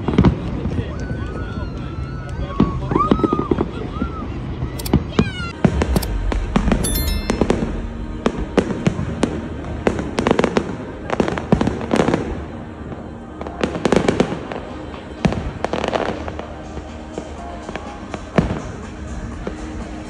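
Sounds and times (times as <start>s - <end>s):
fireworks bangs and crackles: 0.0s - 1.0s, 5.6s - 19.6s.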